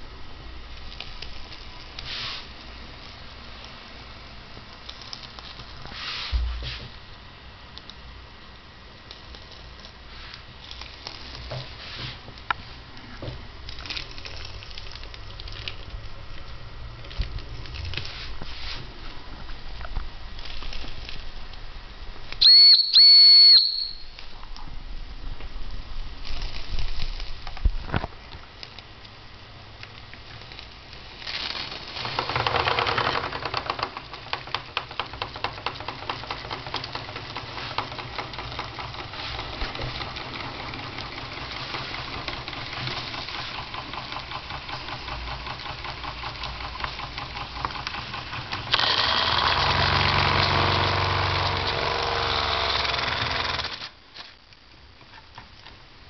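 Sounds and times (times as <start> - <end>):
model steam engine chuffing: 34.2 - 53.9.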